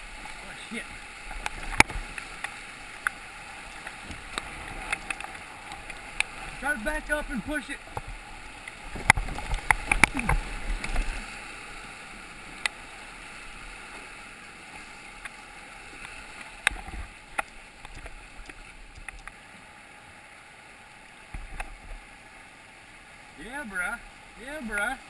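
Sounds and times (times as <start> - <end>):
rushing whitewater: 0.0 - 25.0
paddle splashes and knocks: 3.8 - 11.4.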